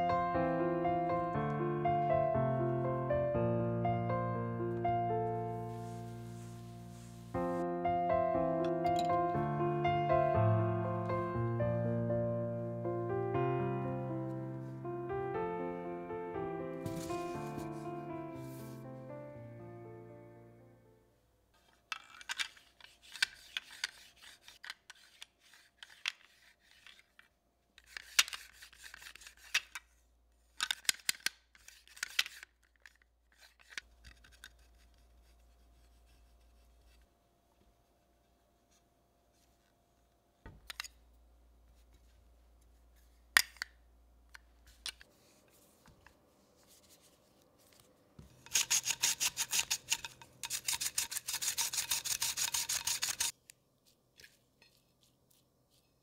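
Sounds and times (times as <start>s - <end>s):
garlic slicer rasping: 48.4s - 53.3s.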